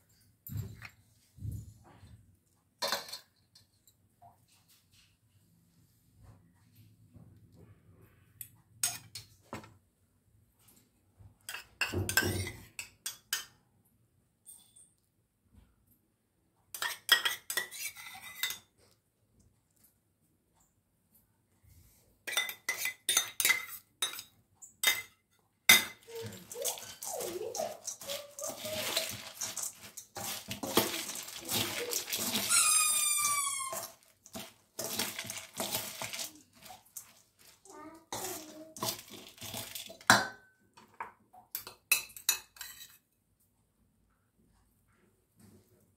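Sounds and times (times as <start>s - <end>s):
spoons clinking in steel bowl: 16.8s - 18.7s, 22.3s - 37.6s, 38.2s - 40.4s, 41.5s - 43.0s.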